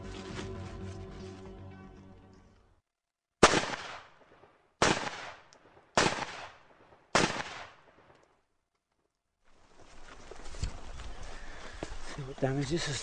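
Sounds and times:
rifle shots with echo: 0:03.4 - 0:08.1.

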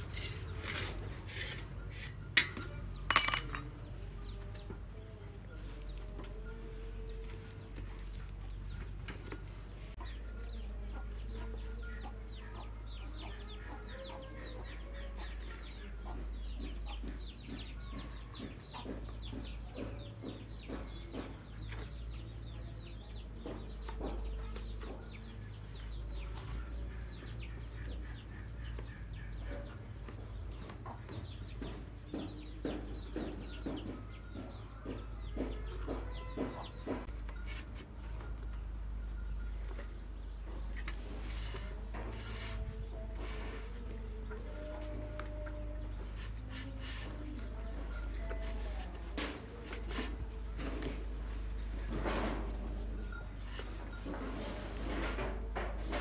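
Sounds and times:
chickens clucking and cheeping: 0:03.7 - 0:56.0.

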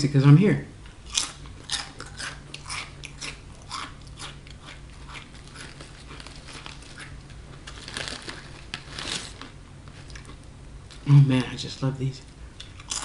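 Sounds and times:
chips crunching while chewed: 0:01.1 - 0:11.0, 0:12.6 - 0:13.0
hand rustling in chip bag: 0:05.4 - 0:10.2.

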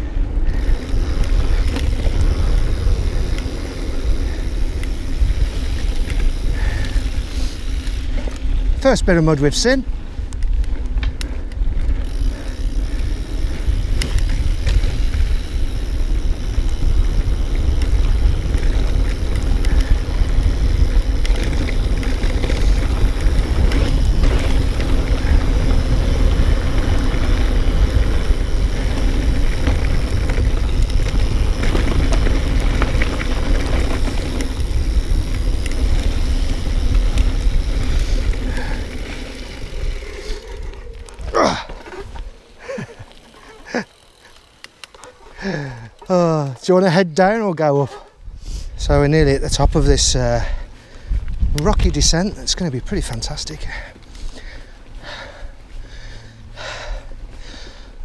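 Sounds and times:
bike clicks and rattles: 0:00.0 - 0:58.0
bike tyres rumbling on dirt: 0:00.0 - 0:58.0
wind on camera: 0:10.0 - 0:43.2, 0:48.2 - 0:53.7.

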